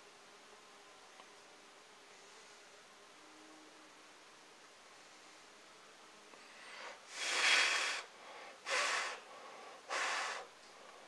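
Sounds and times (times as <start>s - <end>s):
puffs of breath blowing: 6.4s - 11.0s.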